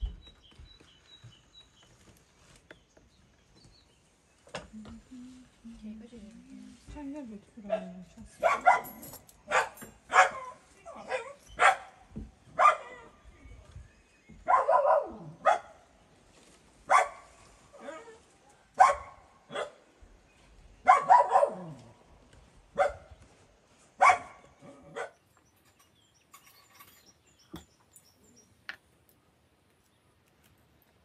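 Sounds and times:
dog barking: 0:07.7 - 0:13.1, 0:14.4 - 0:15.8, 0:16.9 - 0:18.0, 0:18.8 - 0:19.9, 0:20.8 - 0:21.9, 0:22.7 - 0:23.2, 0:24.0 - 0:25.2.

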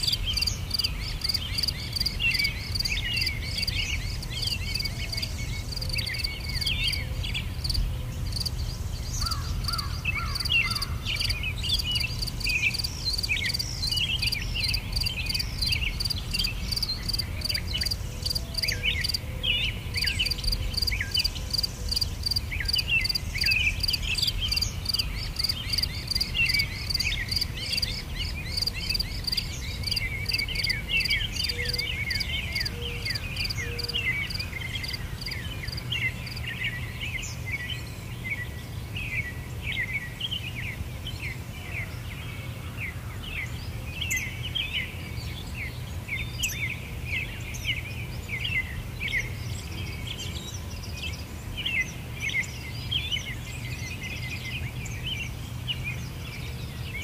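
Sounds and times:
insects chirping: 0:00.0 - 0:19.2, 0:20.0 - 0:33.6, 0:34.2 - 0:36.5
birds chirping: 0:00.0 - 0:57.0.

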